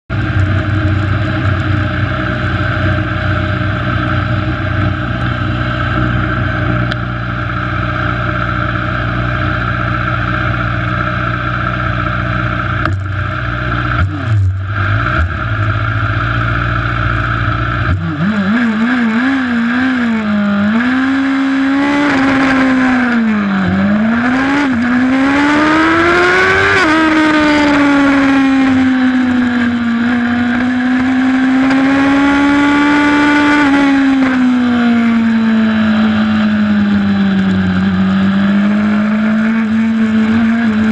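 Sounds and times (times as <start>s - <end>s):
motorcycle engine idling: 0.1s - 14.1s
motorcycle engine revving: 0.1s - 40.9s.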